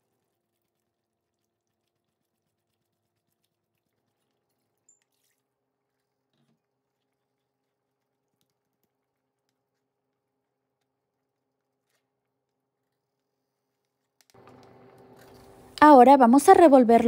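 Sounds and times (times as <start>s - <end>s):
faint steady hum: 14.4s - 17.0s.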